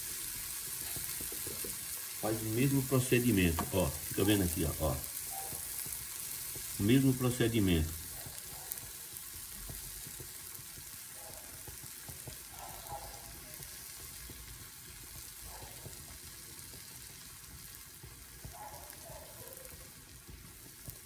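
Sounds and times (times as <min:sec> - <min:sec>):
cheese sizzling in a frying pan: 0:00.0 - 0:21.0.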